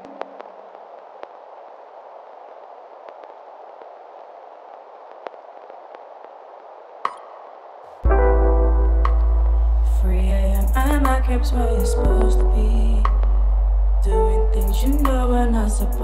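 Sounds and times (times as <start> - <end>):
vinyl crackle hiss: 0.0 - 16.0
bass-heavy beat: 8.0 - 16.0.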